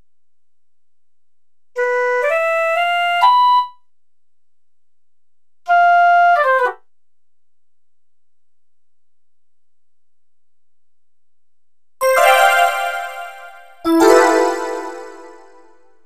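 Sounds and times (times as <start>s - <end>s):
piccolo notes: 12.0s - 15.7s.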